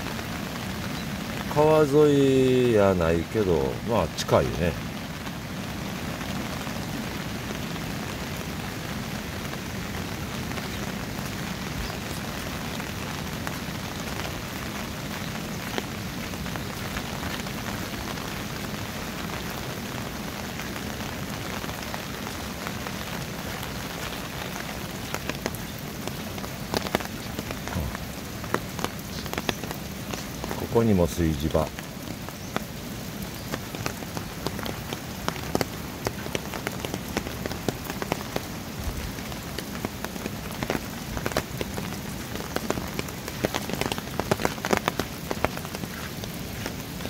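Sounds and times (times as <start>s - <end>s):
rain falling: 0.0s - 47.0s
sharp raindrop hits: 15.6s - 47.0s.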